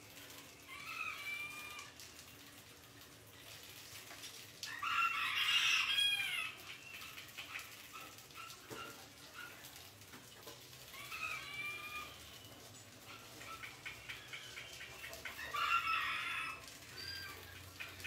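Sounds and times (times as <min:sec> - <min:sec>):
animal crying: 0:00.6 - 0:02.0, 0:10.9 - 0:12.4.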